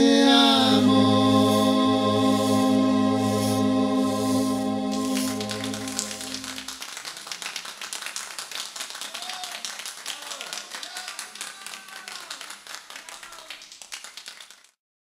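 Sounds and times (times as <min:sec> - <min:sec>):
small group applauding: 0:05.1 - 0:14.8.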